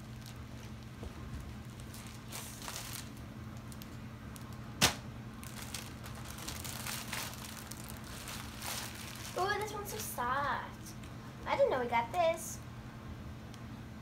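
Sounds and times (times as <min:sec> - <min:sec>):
clothes and packaging rustling: 0:00.0 - 0:11.1
low steady hum: 0:00.0 - 0:14.0.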